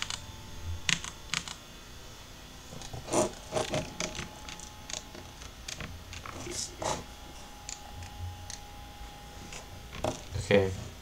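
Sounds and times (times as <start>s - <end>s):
keyboard and mouse clicks: 0.0s - 0.2s, 0.9s - 1.6s.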